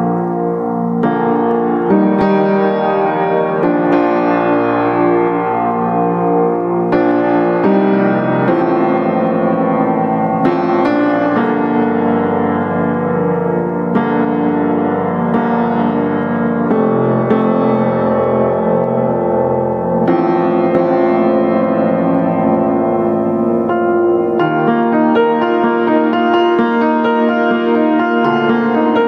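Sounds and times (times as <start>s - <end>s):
slow piano chords: 0.0s - 29.0s.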